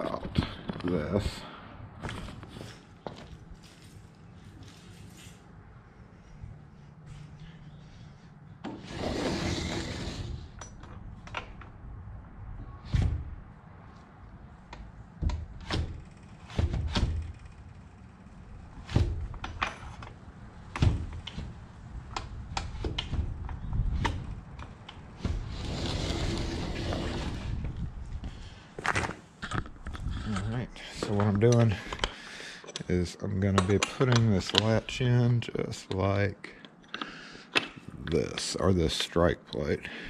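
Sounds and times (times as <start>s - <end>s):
sliding glass door rolling: 8.6s - 11.0s, 22.4s - 27.9s.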